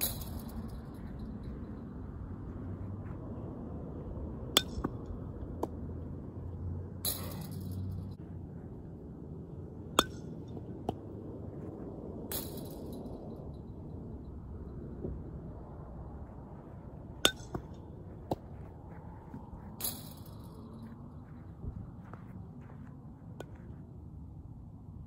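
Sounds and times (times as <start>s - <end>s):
steady low rumble: 0.0s - 25.0s
sharp clinking knocks: 7.1s - 8.1s.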